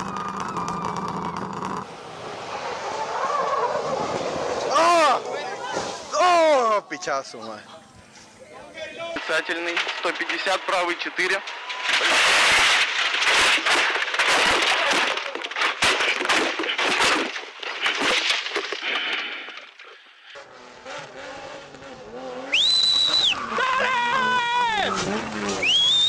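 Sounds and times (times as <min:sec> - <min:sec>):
windscreen shattering: 0:09.0 - 0:20.0
car crash bangs and scraping: 0:09.2 - 0:19.9.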